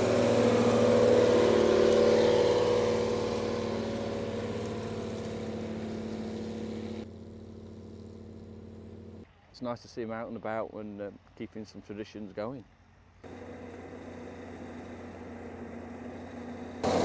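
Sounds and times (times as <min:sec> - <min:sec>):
diesel engine running under load: 0:00.0 - 0:09.2, 0:13.2 - 0:17.0.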